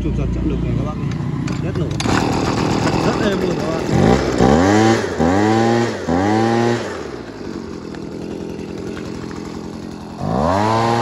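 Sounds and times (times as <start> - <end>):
leaf blower engine idling: 0.0 - 11.0
leaf blower engine revving: 0.5 - 11.0.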